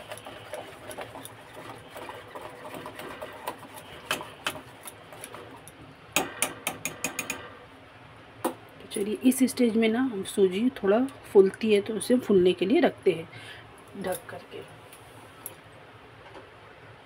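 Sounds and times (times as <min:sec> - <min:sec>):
whisk tapping metal bowl: 0:00.0 - 0:05.4, 0:06.2 - 0:07.5
whisk beating batter: 0:00.0 - 0:07.5.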